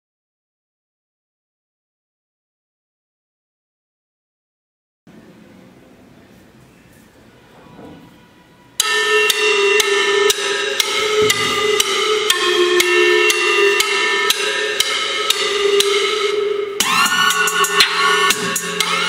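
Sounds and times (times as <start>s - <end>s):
music from small speaker: 6.7s - 19.0s.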